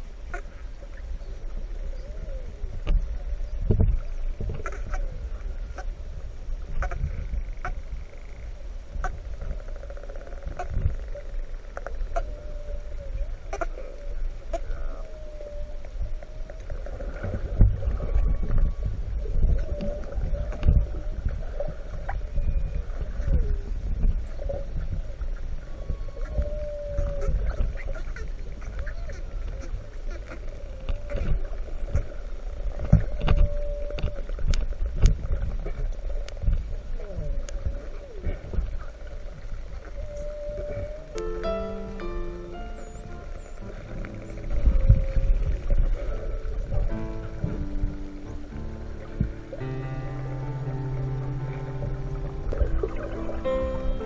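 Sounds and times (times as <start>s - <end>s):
piano music: 41.0s - 54.0s
wavering hum: 41.1s - 54.0s
water rumble on camera housing: 43.4s - 54.0s.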